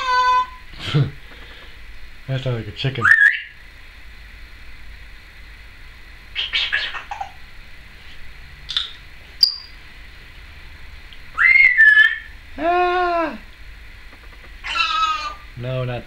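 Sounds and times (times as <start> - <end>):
parrot calls: 0.0 - 0.7, 3.0 - 3.6, 6.3 - 7.4, 8.7 - 9.8, 11.3 - 13.5, 14.2 - 15.5
parrot chirps: 3.0 - 3.6, 6.4 - 7.4, 8.7 - 9.8, 11.3 - 12.4, 14.2 - 15.5
parrot whistle: 3.0 - 3.6, 6.4 - 7.2, 8.7 - 9.8, 11.3 - 12.4, 14.6 - 15.4.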